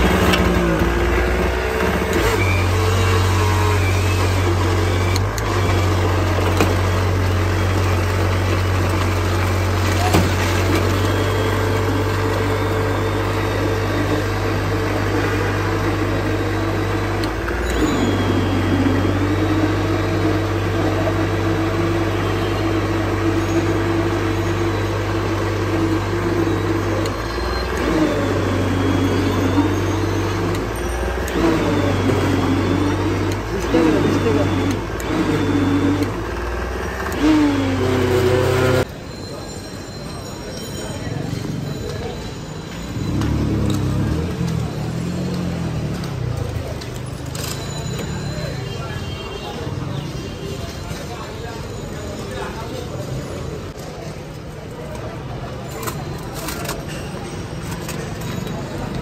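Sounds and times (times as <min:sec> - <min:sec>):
blender motor whining: 0:00.0 - 0:38.9, 0:42.8 - 0:48.6.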